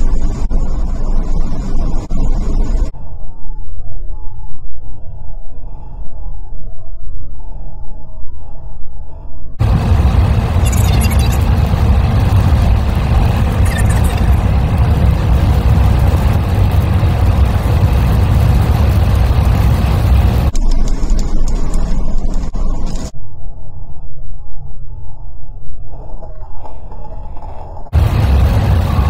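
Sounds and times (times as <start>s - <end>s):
car road noise from inside: 9.6s - 20.5s, 27.9s - 29.0s.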